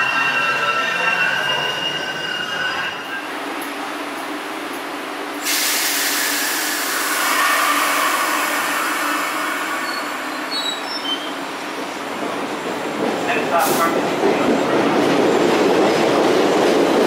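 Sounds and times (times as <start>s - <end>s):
subway train humming: 0.0s - 17.0s
loud air hiss: 5.4s - 10.9s.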